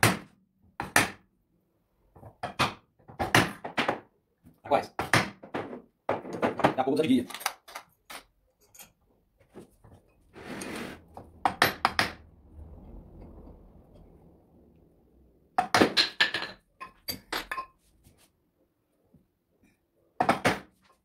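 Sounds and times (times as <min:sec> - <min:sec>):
short scraping noise: 0:10.3 - 0:11.1.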